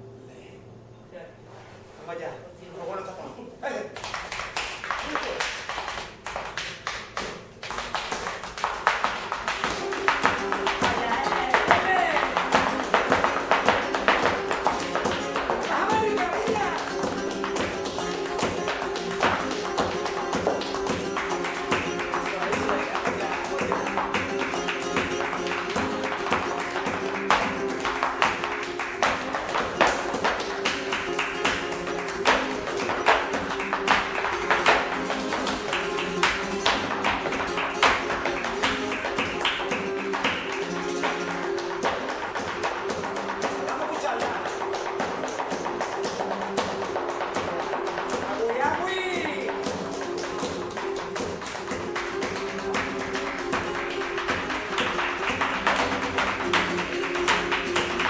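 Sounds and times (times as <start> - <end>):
flamenco guitar playing: 3.7 - 58.0
hand-clapping: 3.8 - 58.0
dancer's shoes tapping on wood: 4.0 - 58.0.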